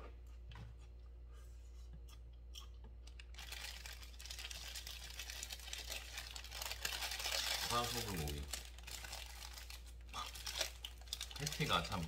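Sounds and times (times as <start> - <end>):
paper wrapper crinkling: 3.3 - 12.0.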